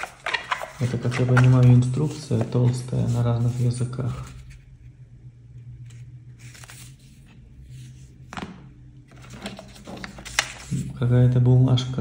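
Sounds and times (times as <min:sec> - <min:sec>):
paper rustling: 0:00.0 - 0:04.6, 0:05.9 - 0:08.0, 0:09.1 - 0:11.0.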